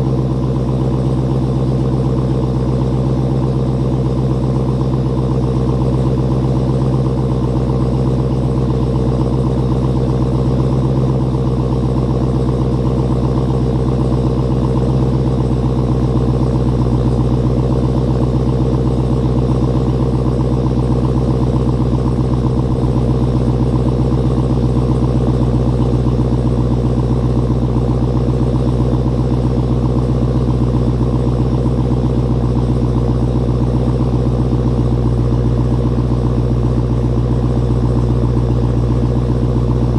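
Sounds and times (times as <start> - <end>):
car engine idling: 0.0 - 39.9.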